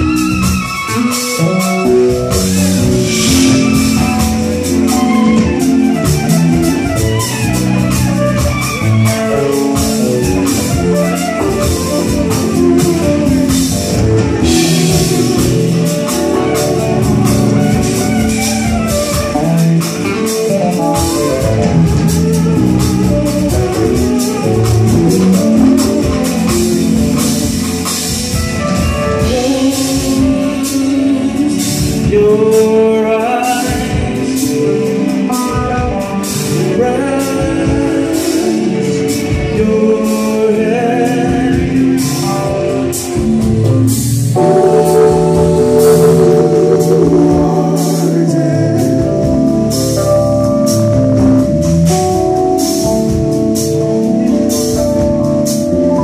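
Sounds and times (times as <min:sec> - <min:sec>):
drum kit with busy cymbals: 0:00.0 - 0:56.0
electric bass: 0:00.0 - 0:56.0
keyboards: 0:00.0 - 0:56.0
person singing: 0:28.9 - 0:42.8, 0:44.4 - 0:52.1.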